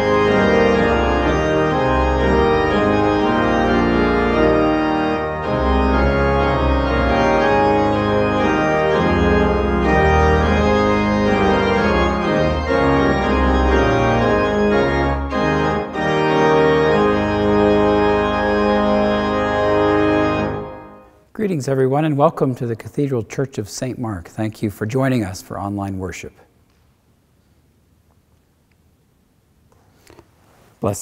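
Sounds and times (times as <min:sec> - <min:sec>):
church organ playing chords: 0:00.0 - 0:22.5.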